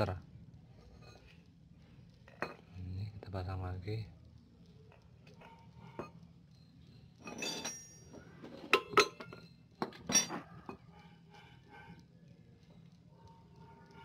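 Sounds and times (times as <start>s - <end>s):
metallic clinks: 5.4s - 10.8s
metal parts scraping: 7.2s - 10.4s.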